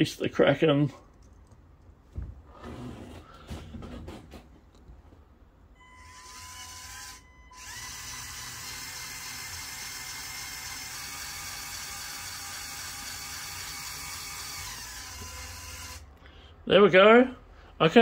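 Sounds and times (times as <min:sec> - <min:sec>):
small electric motor whining: 0:05.9 - 0:16.1.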